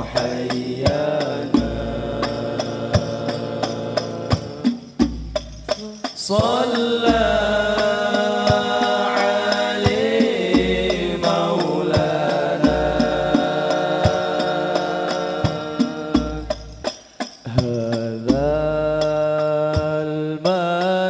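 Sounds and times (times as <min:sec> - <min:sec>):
man singing devotional melody: 0:00.0 - 0:04.9, 0:05.7 - 0:21.0
frame drums: 0:00.0 - 0:21.0
deep bass drum strokes: 0:04.3 - 0:16.9.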